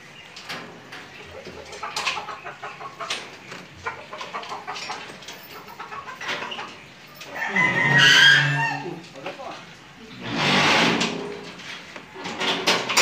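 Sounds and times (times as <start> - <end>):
chickens clucking: 0.0 - 10.2.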